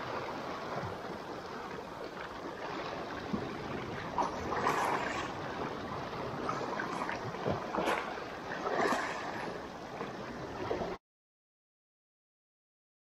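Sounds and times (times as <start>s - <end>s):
waves lapping against rocks: 0.0s - 11.0s
wind on microphone: 0.0s - 11.0s
brief water splashes: 4.1s - 5.4s.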